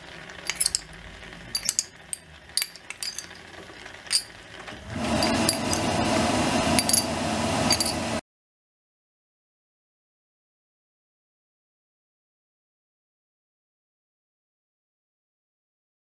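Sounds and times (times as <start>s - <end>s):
metal spoon clinking on bowl: 0.5s - 0.9s, 1.5s - 3.4s, 4.1s - 4.4s, 5.2s - 5.9s, 6.8s - 7.1s, 7.7s - 8.0s.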